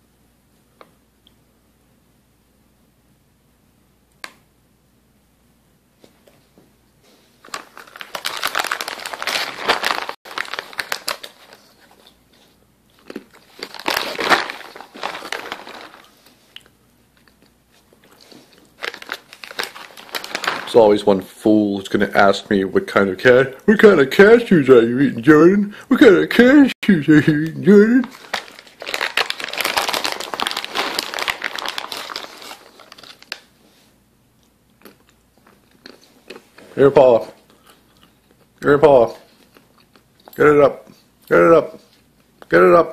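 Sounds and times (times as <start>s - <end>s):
plastic pouch crinkling: 7.4s - 12.2s, 13.0s - 17.4s, 18.0s - 21.3s, 27.2s - 33.5s.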